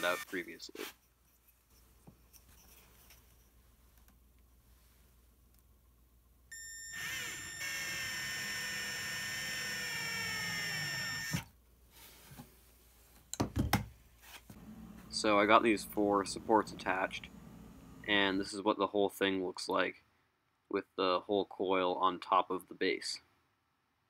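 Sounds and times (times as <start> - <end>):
cordless drill motor whining: 0.0 - 0.3, 6.5 - 11.5.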